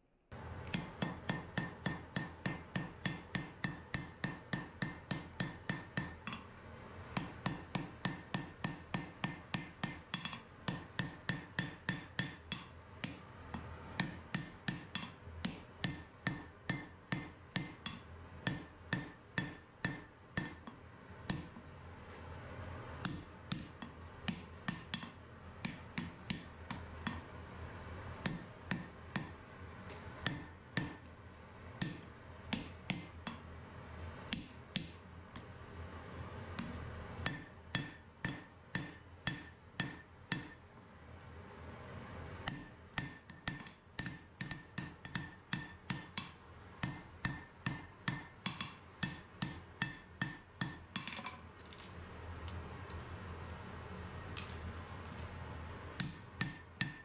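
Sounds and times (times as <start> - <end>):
hammer striking steel on anvil: 0.8 - 6.5, 7.2 - 13.2, 14.0 - 21.6, 28.2 - 29.4, 30.2 - 31.0, 31.8 - 33.5, 37.2 - 40.6, 42.5 - 51.4, 56.0 - 57.0.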